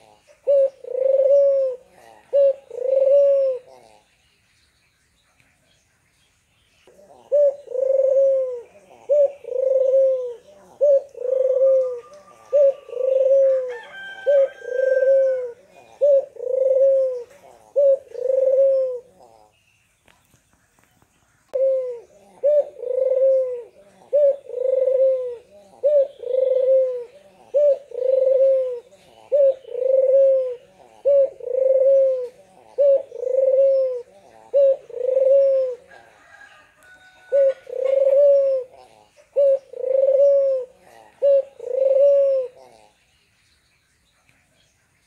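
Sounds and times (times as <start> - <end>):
dove cooing: 0.0 - 4.2, 6.8 - 19.6, 21.5 - 43.1.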